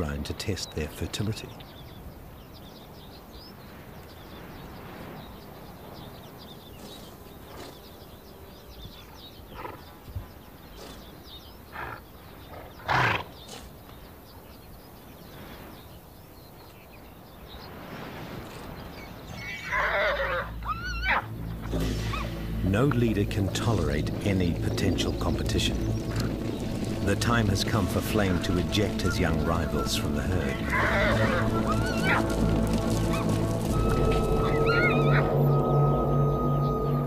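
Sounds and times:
horses calling: 9.5 - 9.9, 11.7 - 13.7, 19.3 - 35.6.

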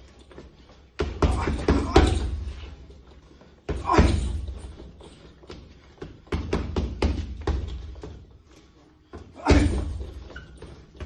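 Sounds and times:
gloves punching heavy bag: 9.4 - 10.0.

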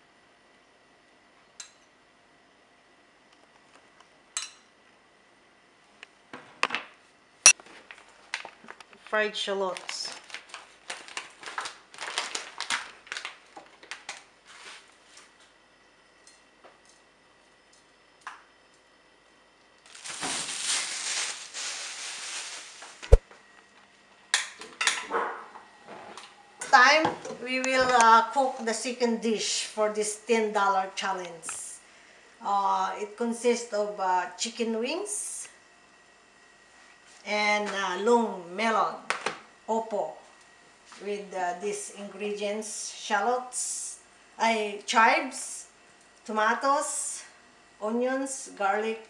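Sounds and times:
plastic bag crinkling: 7.7 - 14.9, 19.8 - 23.2.

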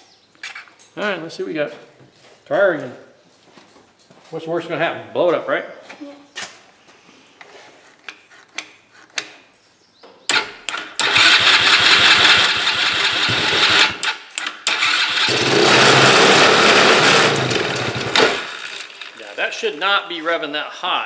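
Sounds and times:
quad engine revving high: 10.8 - 19.8.

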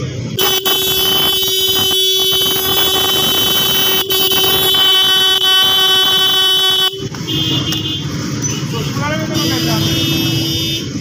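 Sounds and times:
electric horn sounding steady note: 0.4 - 7.0.

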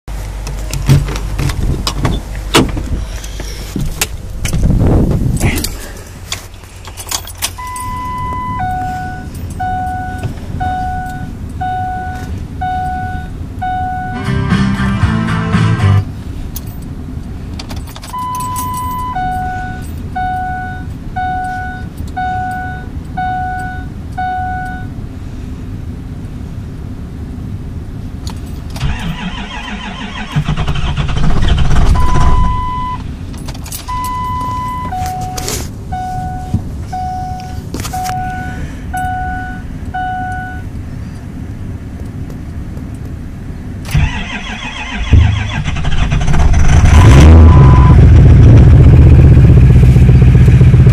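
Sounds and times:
low steady rumble: 0.1 - 50.9
dashboard warning beep: 7.5 - 14.4, 18.1 - 25.0, 31.9 - 33.0, 33.8 - 40.7, 47.0 - 48.1.

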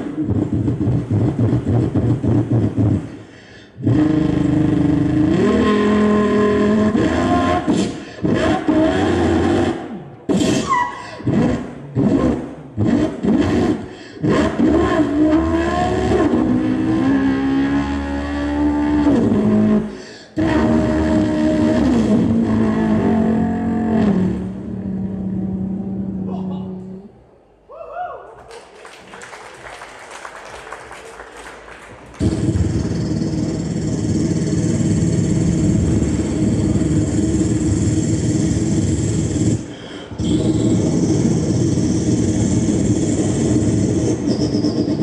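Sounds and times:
man imitating car engine: 3.7 - 27.1.

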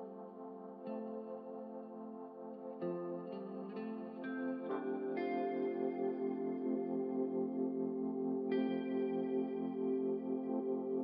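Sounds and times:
ambient music ringing notes: 0.0 - 11.0.

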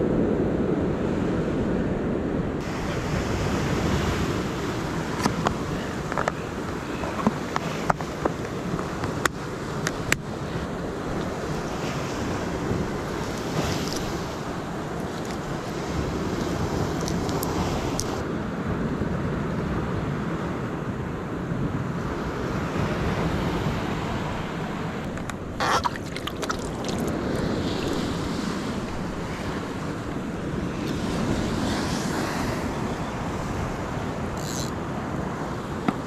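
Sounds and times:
wind buffeting microphone: 0.0 - 36.0
surf washing against rocks: 2.6 - 18.5, 22.0 - 36.0.

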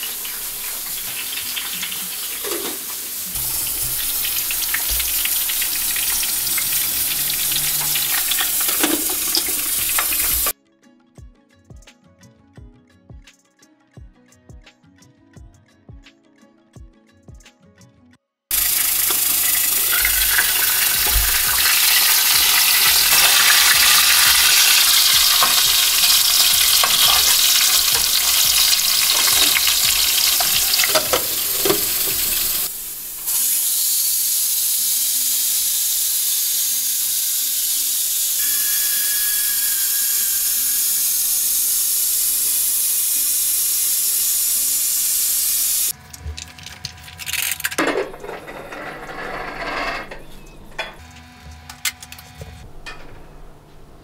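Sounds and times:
utensil scraping a pan: 0.0 - 10.5, 18.5 - 32.9, 47.9 - 51.0
food sizzling in hot oil: 0.0 - 10.6, 18.5 - 48.2.

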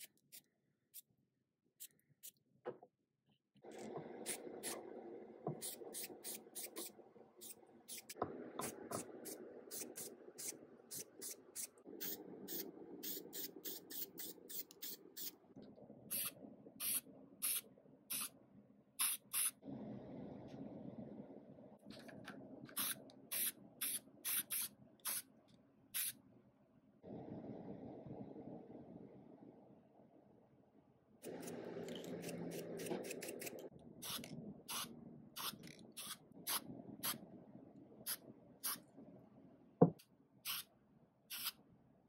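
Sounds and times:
spray can hissing bursts: 19.0 - 19.6, 22.8 - 25.2, 26.0 - 26.2, 40.5 - 40.7, 41.3 - 41.6
steady low hum: 19.6 - 23.8, 26.6 - 39.8.

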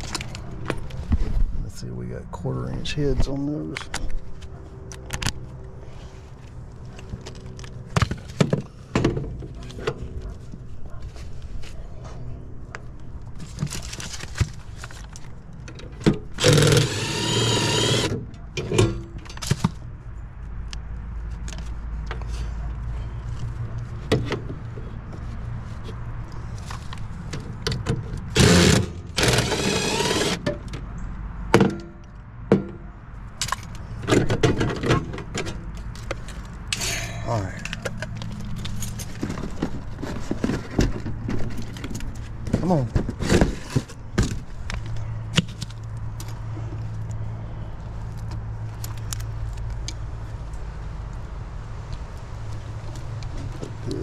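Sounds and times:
cordless driver whirring: 16.4 - 18.2, 28.4 - 30.4.

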